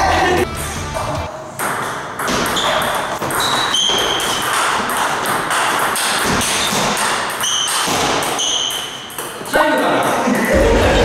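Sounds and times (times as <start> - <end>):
table tennis ball pings: 1.0 - 9.4.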